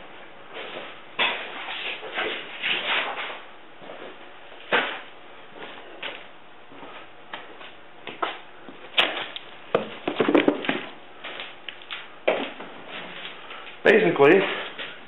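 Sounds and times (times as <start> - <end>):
cardboard box knocking and clattering: 9.8 - 10.9.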